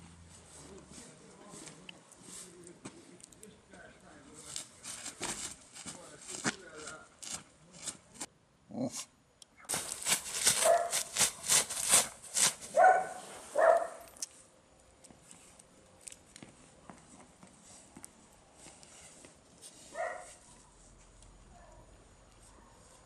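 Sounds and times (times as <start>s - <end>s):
rustling and scuffing: 0.0s - 8.3s, 9.7s - 14.5s, 15.1s - 21.2s
dog barking: 10.6s - 11.1s, 12.7s - 14.1s, 20.0s - 20.4s.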